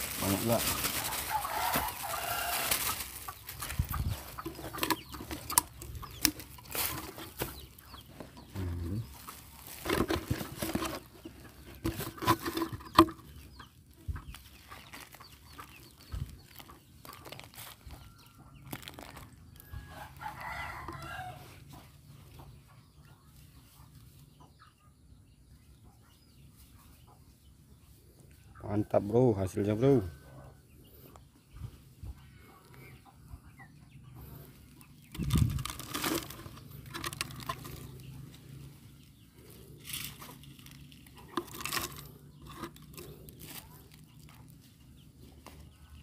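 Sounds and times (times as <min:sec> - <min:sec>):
hands rustling in soil: 0:00.0 - 0:22.0, 0:34.3 - 0:46.0
rooster crowing: 0:01.0 - 0:02.8, 0:19.6 - 0:21.5.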